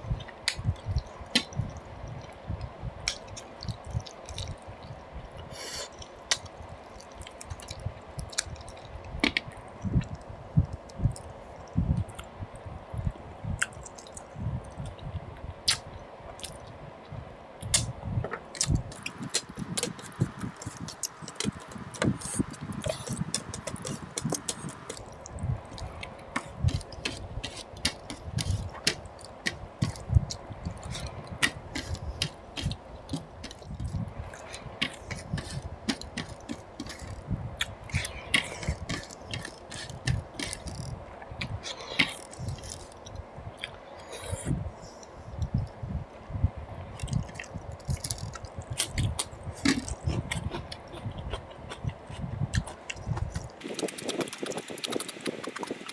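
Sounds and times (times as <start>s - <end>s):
wet chewing smacks: 47.0s - 55.9s.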